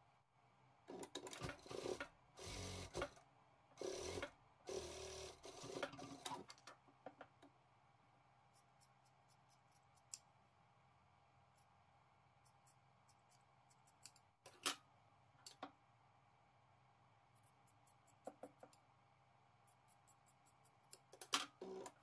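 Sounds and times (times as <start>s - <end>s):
sewing machine stitching: 0.9s - 3.2s, 3.8s - 6.5s.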